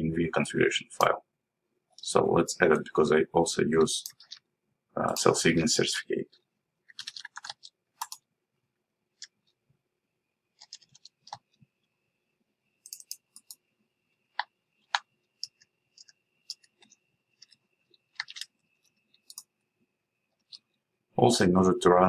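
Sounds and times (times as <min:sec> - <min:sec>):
keyboard keys clicking: 0:06.9 - 0:08.2.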